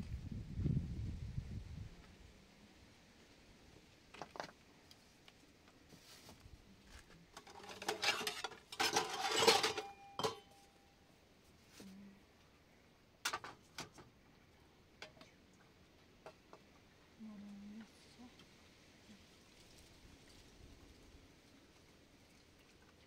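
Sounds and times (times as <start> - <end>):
knocks and clatter of objects: 4.1 - 4.6, 7.3 - 10.6
short ringing tone: 9.8 - 10.9.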